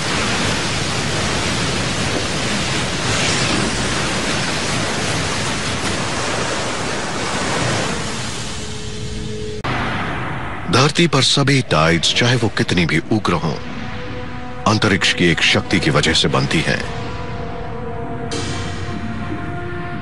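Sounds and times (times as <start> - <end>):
ocean waves breaking: 0.0 - 10.0.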